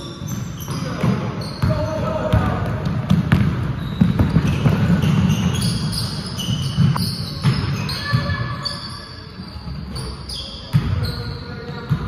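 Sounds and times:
sneakers squeaking: 0.0 - 12.0
basketball bouncing: 1.0 - 5.8, 10.7 - 11.0.

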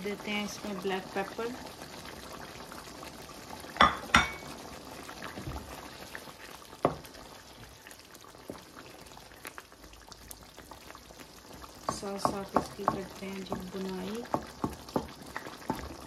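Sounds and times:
sauce bubbling in a wok: 0.0 - 16.0
utensil knocking against pan: 11.9 - 13.7.

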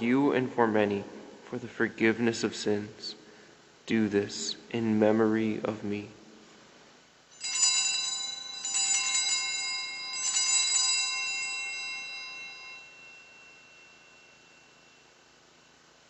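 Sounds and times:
altar bells jingling: 7.3 - 16.0.

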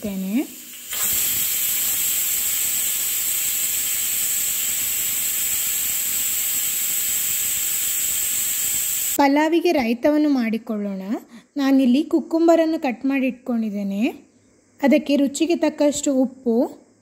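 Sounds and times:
pressure cooker whistle hissing: 0.2 - 9.2.

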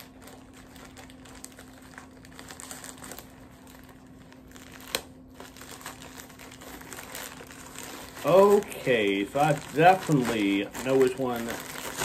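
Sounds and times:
plastic bag crinkling: 0.0 - 12.0
plastic bag snap: 4.5 - 6.1, 9.4 - 12.0.

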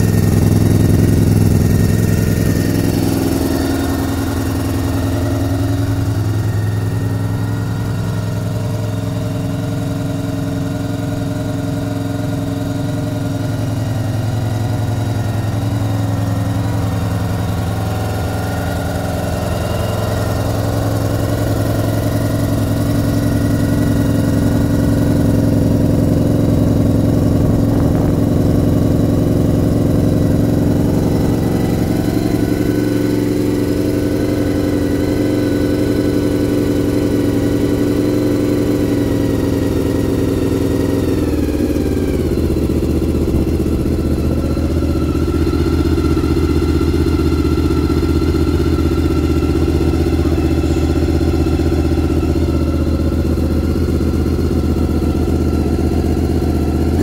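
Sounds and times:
motorcycle engine idling: 0.0 - 57.0.

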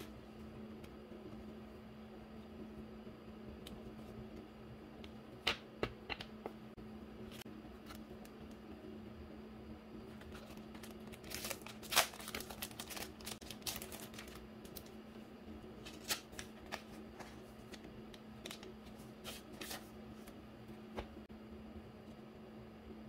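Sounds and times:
paper packet rustling: 10.3 - 15.0, 15.8 - 17.8
plastic sleeve crinkling: 10.3 - 15.0.

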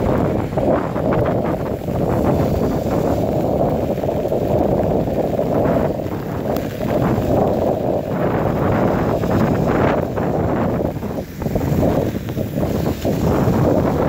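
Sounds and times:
strong wind on microphone: 0.0 - 14.0.

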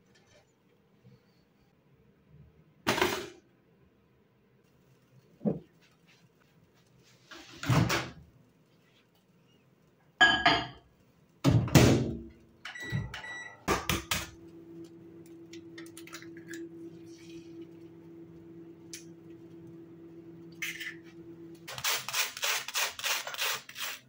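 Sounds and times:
cupboard door opened and shut: 7.5 - 8.2
appliance humming: 12.8 - 23.8.

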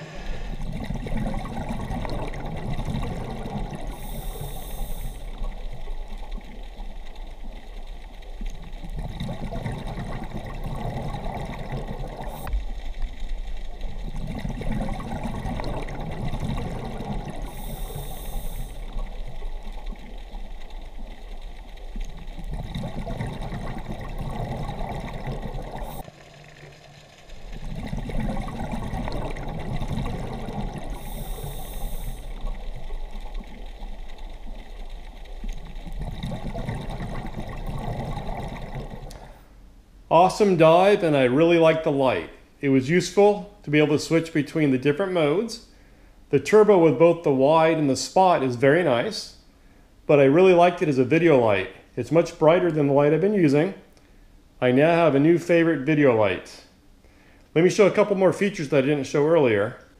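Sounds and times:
exhaled bubbles rumbling: 0.0 - 39.5
steady watery hiss: 0.0 - 59.9
regulator inhalation hiss: 3.8 - 5.4, 17.4 - 18.8, 30.9 - 32.4.

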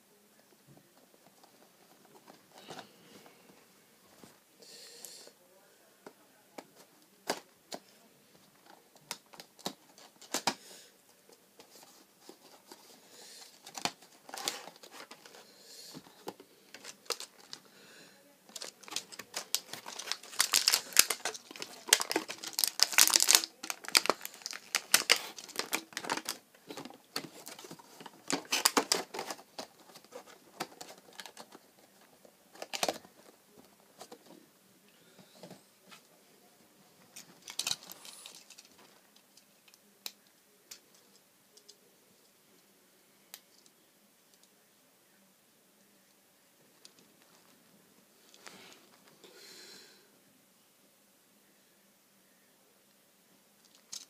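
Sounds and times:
packaging crinkling and tearing: 16.7 - 17.6, 18.5 - 33.3, 37.1 - 38.9.

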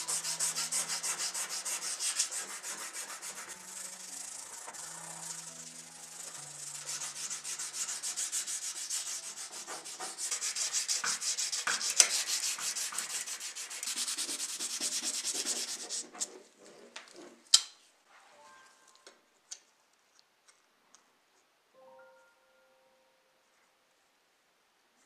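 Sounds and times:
sandpaper scraping metal: 0.0 - 16.5.

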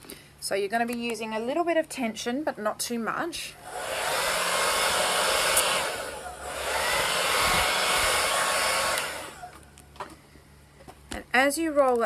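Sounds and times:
hair dryer blowing: 3.6 - 9.7.

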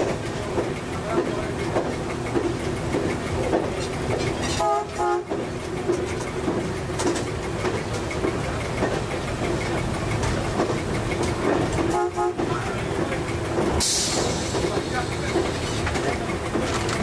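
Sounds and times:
diesel railcar engine: 0.0 - 17.0
wheels clattering on rails: 0.0 - 17.0
railcar horn blasts: 4.5 - 5.4, 11.9 - 12.7.

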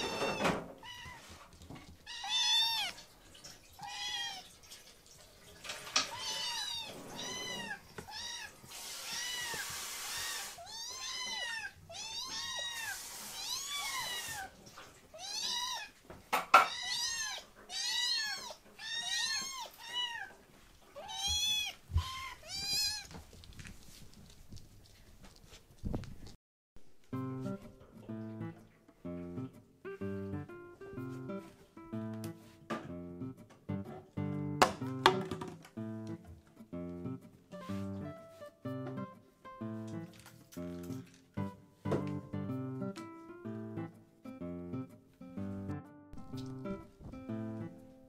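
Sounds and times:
kittens meowing: 2.1 - 3.0, 3.8 - 4.4, 6.0 - 14.5, 15.2 - 15.9, 16.6 - 20.4, 21.0 - 23.1
steady hiss: 8.6 - 10.7, 12.4 - 14.5.

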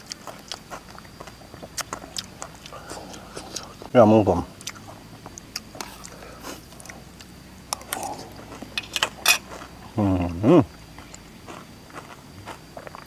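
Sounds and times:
person chewing salad: 0.0 - 3.9, 4.5 - 13.0
person humming mmm: 10.0 - 10.7.

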